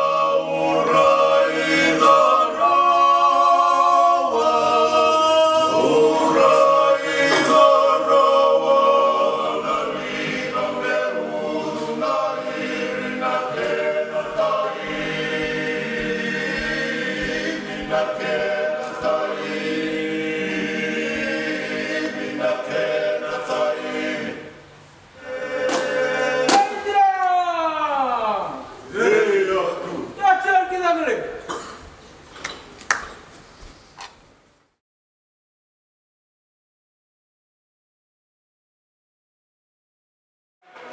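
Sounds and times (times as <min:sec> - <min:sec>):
men chanting in harmony: 0:00.0 - 0:24.5.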